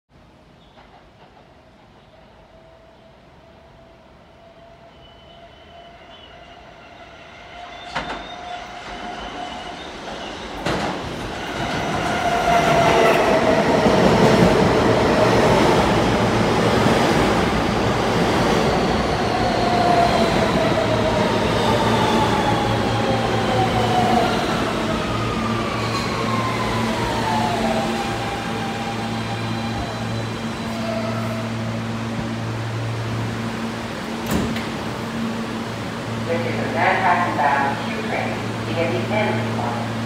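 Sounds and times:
train wheels rumbling on rails: 0.6s - 2.4s, 7.8s - 32.5s.

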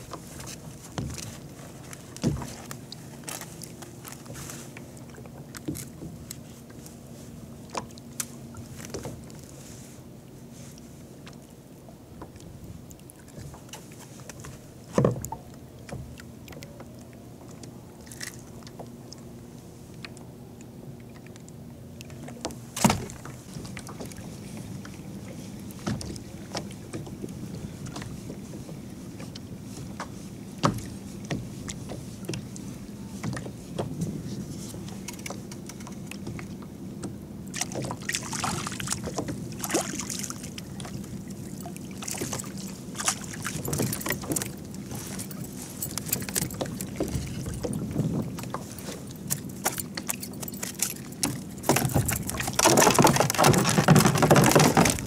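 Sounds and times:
waves lapping against kayak hull: 0.0s - 20.2s, 20.9s - 55.0s
fish splashing: 37.5s - 47.5s
gear knocking on boat: 41.9s - 55.0s.

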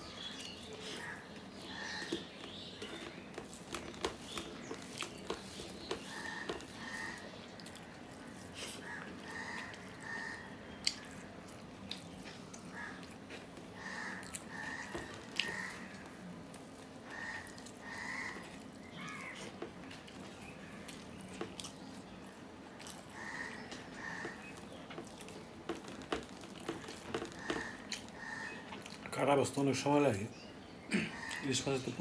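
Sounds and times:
bird calling: 0.0s - 11.3s, 12.7s - 16.2s, 17.0s - 19.7s, 23.0s - 29.0s
soft chewing: 0.0s - 29.2s
fingers mixing food on steel plate: 0.2s - 10.2s.

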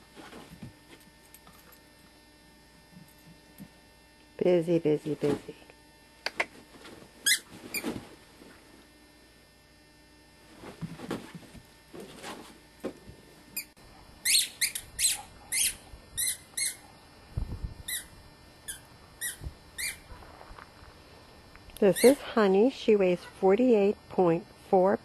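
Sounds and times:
squeaky dog toy squeaking: 7.2s - 7.8s, 14.2s - 16.8s, 18.7s - 20.0s.

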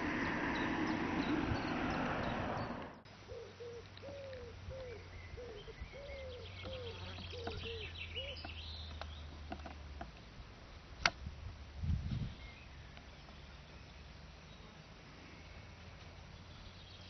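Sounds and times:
small birds chirping: 0.0s - 10.5s, 12.0s - 17.0s
bird giving low arched calls: 2.5s - 8.5s.

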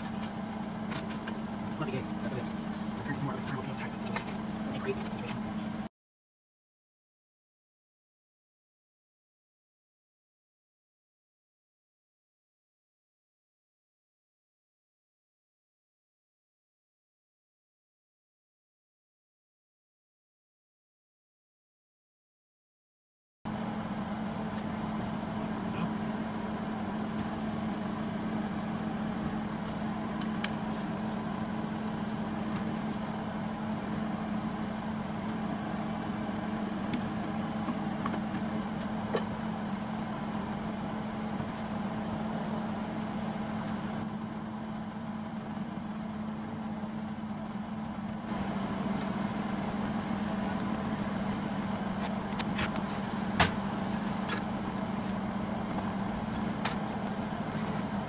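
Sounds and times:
car engine running: 0.0s - 5.9s, 23.5s - 58.0s.

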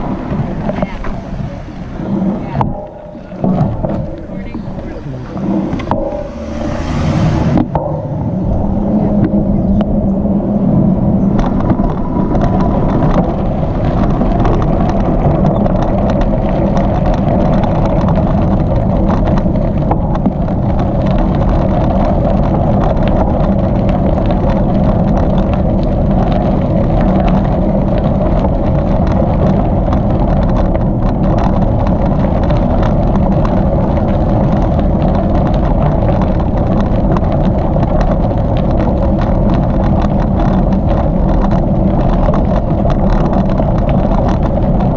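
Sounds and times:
bicycle tyres rumbling: 0.0s - 44.9s
wind buffeting microphone: 0.0s - 44.9s
small clicks and rattles: 10.7s - 44.9s.

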